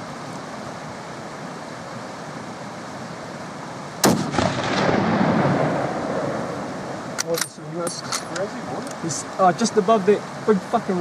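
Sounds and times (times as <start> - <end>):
rifle shot with rolling echo: 4.0 - 6.7.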